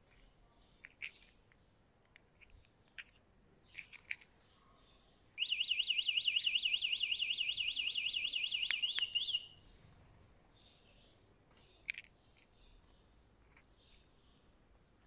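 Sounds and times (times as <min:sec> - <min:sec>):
electronic alarm siren warbling: 0:05.4 - 0:09.6.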